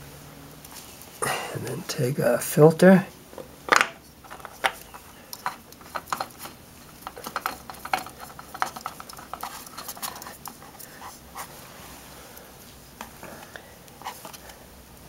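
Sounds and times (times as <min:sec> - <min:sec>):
hands threading oil filter: 0:04.2 - 0:11.2.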